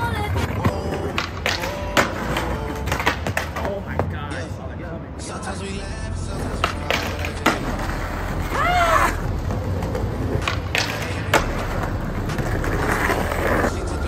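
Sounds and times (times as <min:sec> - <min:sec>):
skateboard deck clacks: 0:00.6 - 0:04.2, 0:06.6 - 0:08.0, 0:09.4 - 0:13.7
skateboard scraping on stone: 0:06.3 - 0:14.0
skateboard squeal: 0:08.0 - 0:09.7.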